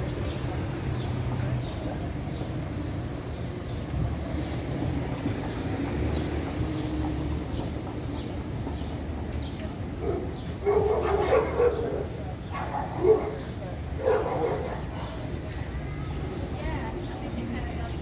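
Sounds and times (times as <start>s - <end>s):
street traffic rumble: 0.0s - 18.0s
dog barking: 10.0s - 15.2s.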